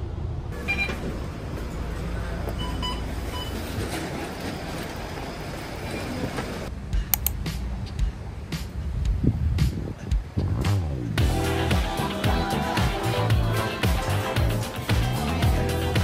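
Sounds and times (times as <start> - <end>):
train rumbling: 0.0 - 11.4
short electronic beeps: 0.6 - 1.0, 2.6 - 3.6
sharp clicks: 7.2 - 8.0.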